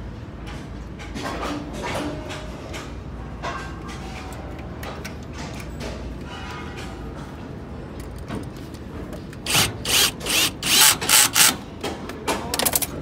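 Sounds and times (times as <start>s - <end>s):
cordless drill bursts: 9.5s - 11.6s.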